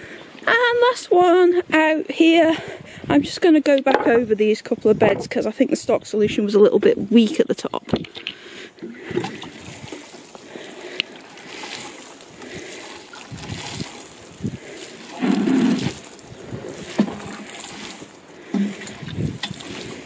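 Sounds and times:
wind rumble on microphone: 1.2s - 7.2s, 13.2s - 17.5s, 18.6s - 20.0s
watering can sprinkling on soil: 9.5s - 20.0s.

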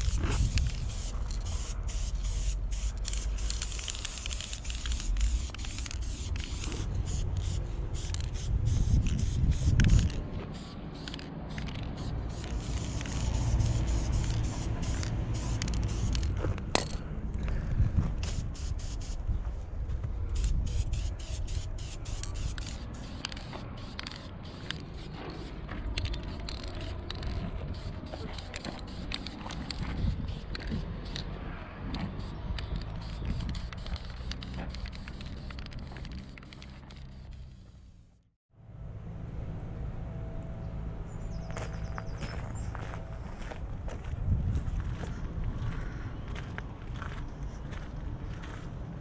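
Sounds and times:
spray paint can hissing: 0.0s - 16.3s, 18.2s - 19.2s, 20.4s - 31.3s, 32.0s - 37.9s.

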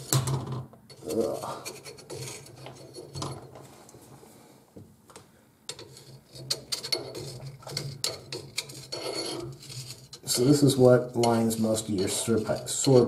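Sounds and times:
screwdriver scraping inside metal pipe: 0.9s - 3.4s, 5.7s - 13.0s.

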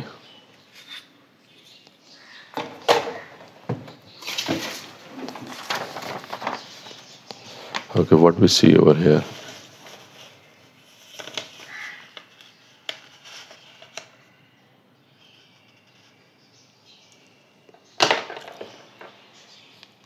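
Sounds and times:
paper rustling: 4.2s - 8.2s, 8.9s - 14.2s.

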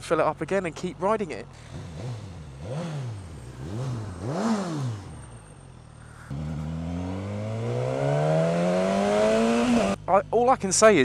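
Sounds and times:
motorcycle engine revving and accelerating: 1.7s - 10.0s.

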